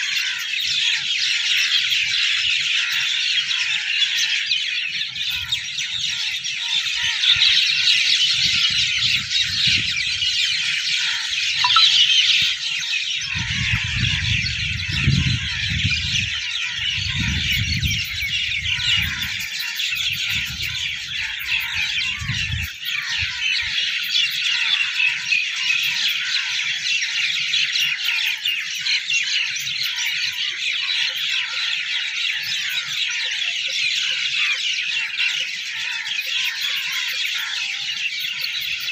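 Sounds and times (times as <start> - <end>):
birds chirping: 0.0 - 38.9
wind rumble on microphone: 6.9 - 11.5, 13.2 - 23.8.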